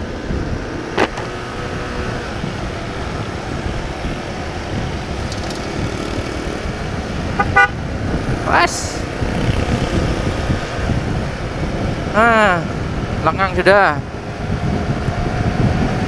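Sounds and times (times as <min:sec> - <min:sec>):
road traffic: 0:00.0 - 0:16.0
motorcycle engine running: 0:01.0 - 0:12.6.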